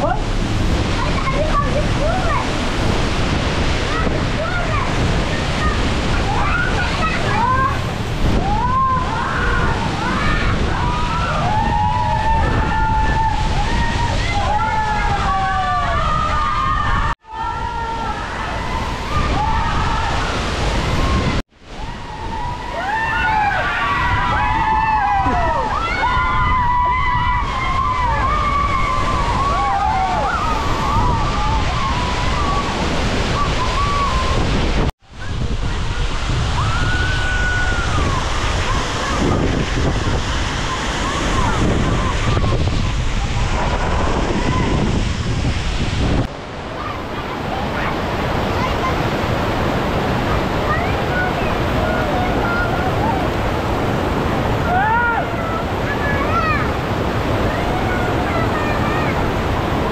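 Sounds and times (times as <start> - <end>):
waterfall rushing: 0.0 - 59.9
wind buffeting microphone: 0.0 - 59.9.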